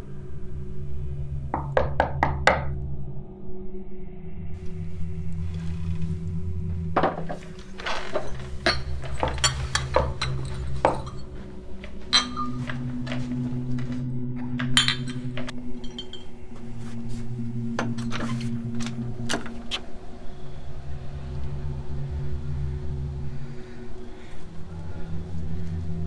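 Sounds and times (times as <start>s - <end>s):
low background music: 0.0s - 26.0s
glass bottles clinking: 7.0s - 16.7s.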